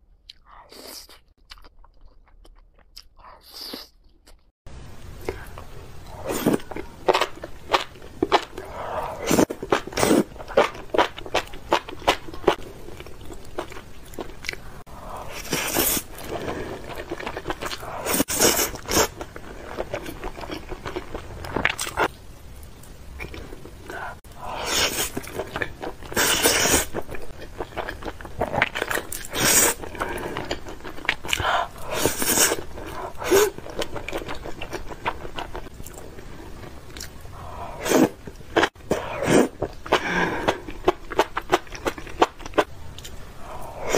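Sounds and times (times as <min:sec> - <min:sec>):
wet chewing and mouth-smacking: 0:01.1 - 0:04.5, 0:25.0 - 0:37.2
slurping noodles: 0:08.4 - 0:10.7, 0:15.0 - 0:19.8, 0:24.4 - 0:25.5, 0:26.1 - 0:27.0, 0:31.3 - 0:33.9, 0:37.4 - 0:40.7.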